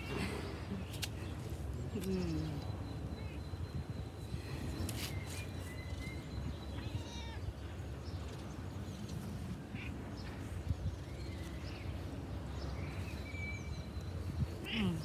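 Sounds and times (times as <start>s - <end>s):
cat meowing: 6.7s - 7.5s.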